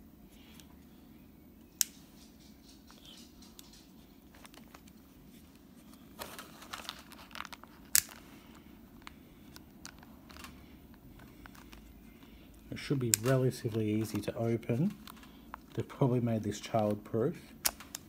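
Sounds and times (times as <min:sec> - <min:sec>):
plastic packaging crinkling: 0:06.1 - 0:09.1.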